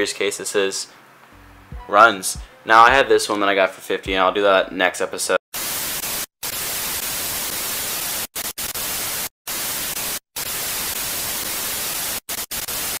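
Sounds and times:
tv static hiss: 5.6s - 13.0s.

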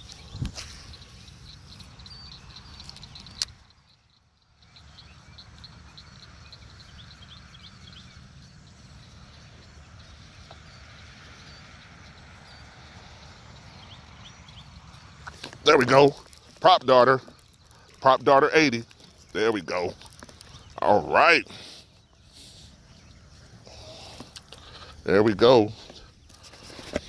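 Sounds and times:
small animals chirping: 12.2s - 25.6s.

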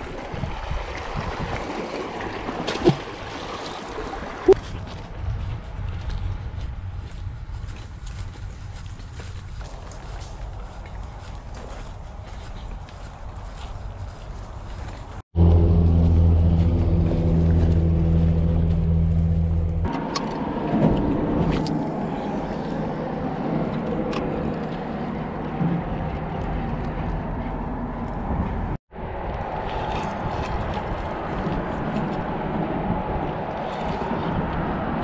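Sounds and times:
outdoor noise: 0.0s - 35.0s
motor vehicle engine hum: 12.0s - 35.0s.

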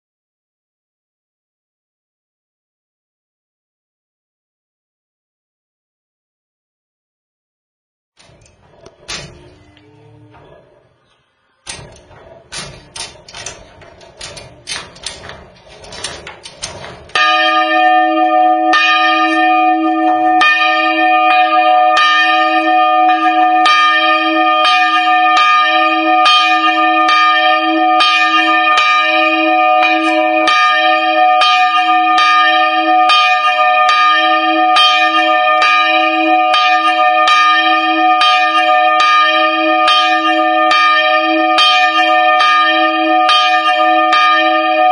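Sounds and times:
bell mounting clicks and knocks: 8.2s - 9.6s, 11.7s - 18.0s
church bell ringing: 11.7s - 44.9s.

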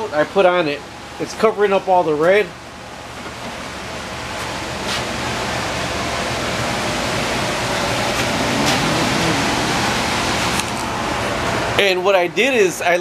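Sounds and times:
furnace blower rushing air: 4.8s - 11.8s
low motor hum: 5.5s - 11.3s.

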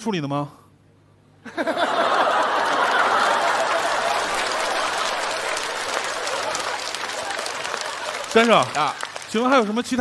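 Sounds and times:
audience laughing: 1.5s - 9.1s
audience applauding: 1.8s - 10.0s.

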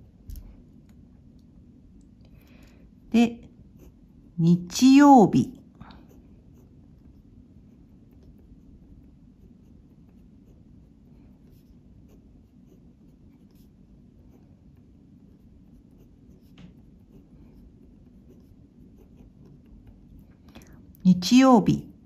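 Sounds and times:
pen scratching on paper: 2.9s - 4.8s, 5.8s - 20.4s.

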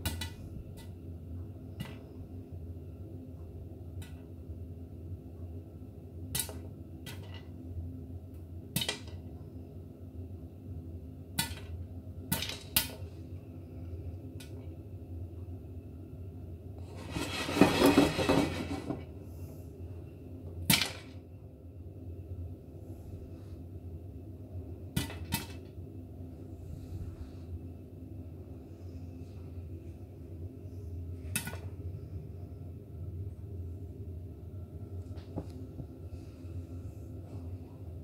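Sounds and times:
popcorn popping in pan: 0.0s - 0.9s, 6.3s - 7.4s, 8.7s - 9.2s, 12.3s - 12.9s, 31.3s - 31.5s
low steady hum: 0.0s - 38.0s.

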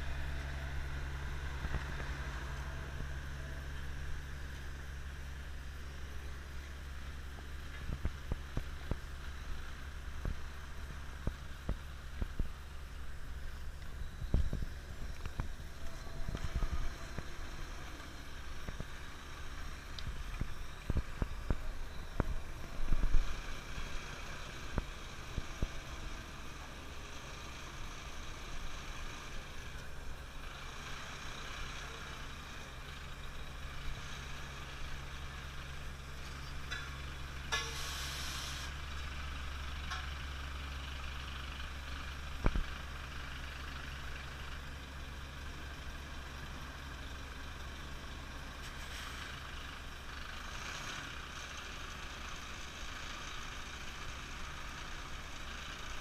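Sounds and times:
truck diesel engine running: 0.0s - 56.0s
air hissing: 37.5s - 38.8s.

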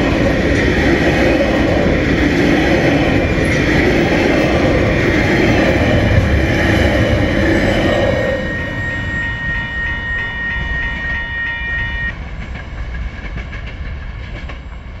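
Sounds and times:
freight train rumbling on rails: 0.0s - 15.0s
level crossing warning bell: 5.7s - 12.1s.

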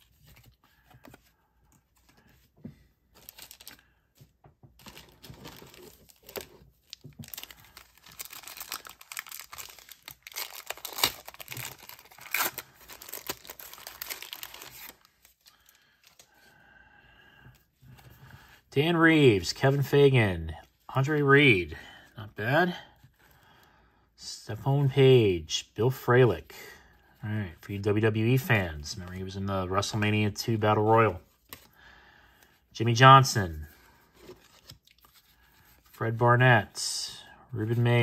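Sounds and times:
wrapper torn and crinkled: 4.8s - 15.7s.

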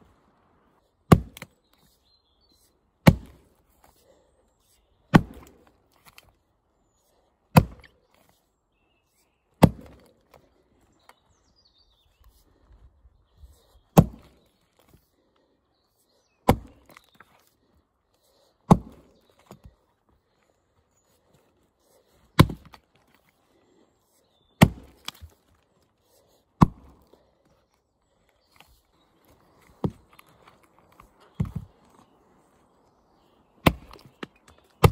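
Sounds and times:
axe chopping into log: 1.1s - 1.5s, 3.0s - 3.5s, 5.1s - 6.2s, 7.5s - 8.0s, 9.6s - 10.1s, 14.0s - 14.4s, 16.4s - 17.0s, 18.7s - 19.6s, 22.4s - 22.8s, 24.6s - 25.3s, 26.6s - 27.0s, 31.4s - 31.7s, 33.6s - 34.9s.

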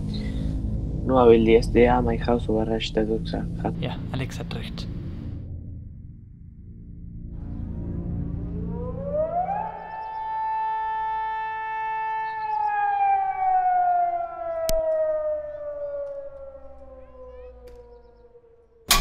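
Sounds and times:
siren wailing: 7.4s - 19.0s.

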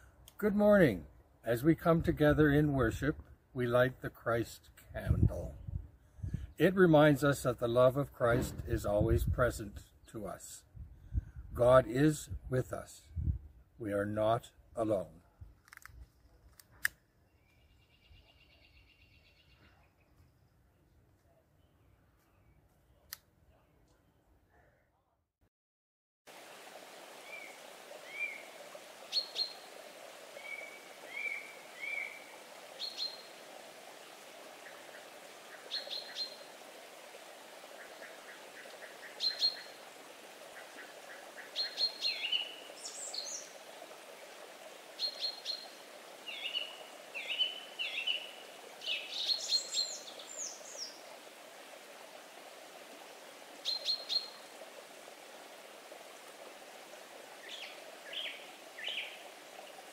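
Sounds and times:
flowing water: 6.6s - 9.2s, 26.3s - 59.9s
birds chirping: 27.2s - 33.4s, 34.6s - 36.6s, 37.8s - 43.6s, 45.0s - 51.1s, 53.6s - 54.5s, 57.4s - 59.2s.

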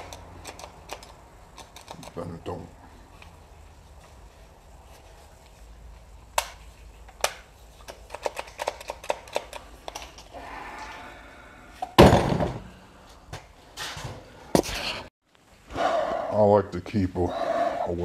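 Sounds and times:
thump with rustling clatter: 12.0s - 12.7s.

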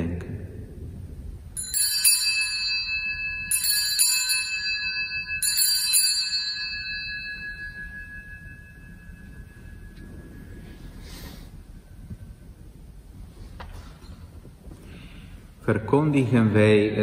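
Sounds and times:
altar bells ringing: 1.5s - 11.5s.

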